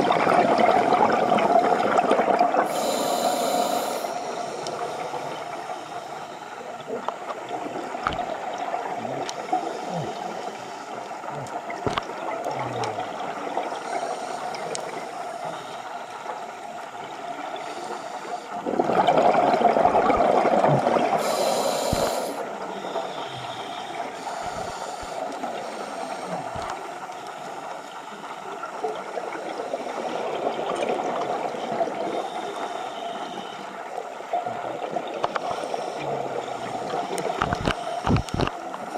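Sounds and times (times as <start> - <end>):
exhaled bubbles gurgling: 0.0 - 15.7, 16.4 - 27.8, 28.4 - 38.9
muffled underwater hiss: 0.0 - 38.9
regulator inhale hiss: 2.6 - 6.9, 13.7 - 16.6, 17.5 - 18.6, 21.2 - 26.8, 32.1 - 33.8, 35.3 - 38.9.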